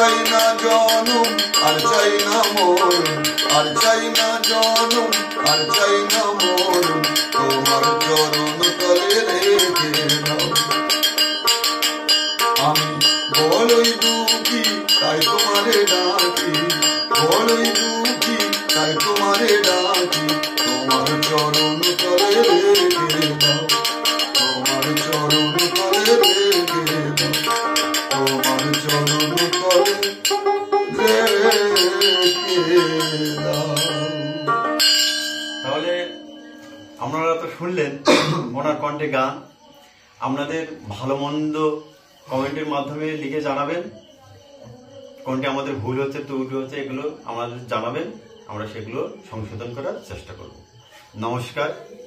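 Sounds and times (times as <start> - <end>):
plucked string instrument strummed: 0.0 - 37.2.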